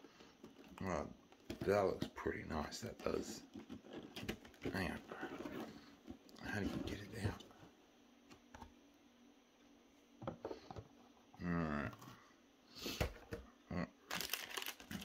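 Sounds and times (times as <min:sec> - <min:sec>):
cardboard and plastic packaging rustling: 0:00.1 - 0:07.6, 0:14.1 - 0:15.0.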